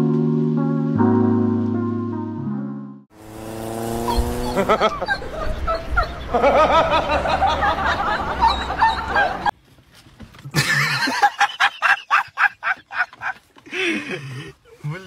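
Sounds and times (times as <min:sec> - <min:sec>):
dog yelping and whimpering: 0:04.0 - 0:06.3
person laughing hard: 0:04.4 - 0:09.5, 0:10.5 - 0:15.0.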